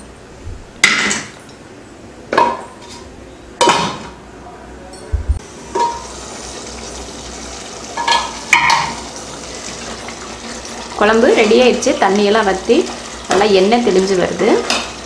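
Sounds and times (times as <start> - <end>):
metal lid clanking on pot: 5.7 - 6.1, 8.0 - 9.0.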